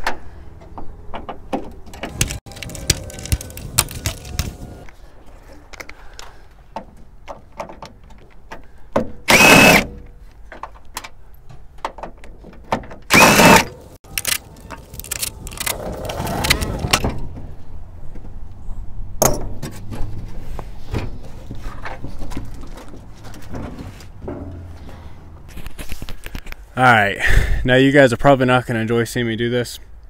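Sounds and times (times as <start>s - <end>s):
cordless drill spinning: 9.3s - 9.8s, 13.1s - 15.1s.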